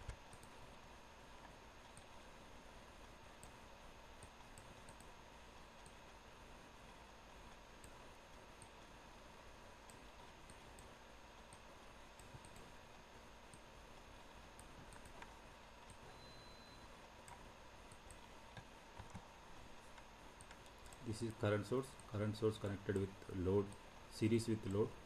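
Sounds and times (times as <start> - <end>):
computer mouse clicks: 0.0 - 0.7, 1.4 - 2.2, 3.4 - 3.6, 4.2 - 5.2, 5.8 - 6.0, 7.8 - 8.0, 8.6 - 8.8, 9.8 - 12.7, 13.5 - 13.7, 14.5 - 16.1, 17.2 - 22.2
faint steady hiss: 0.0 - 25.0.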